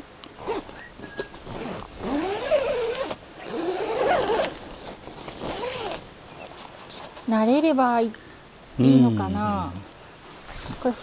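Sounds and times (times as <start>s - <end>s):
tent zipper being pulled: 0.4s - 7.3s.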